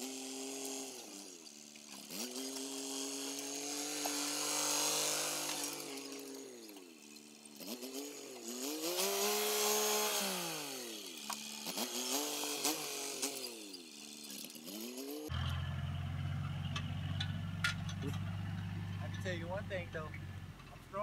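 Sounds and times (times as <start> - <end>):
chainsaw revving: 0.0 - 21.0
tractor engine running: 15.3 - 21.0.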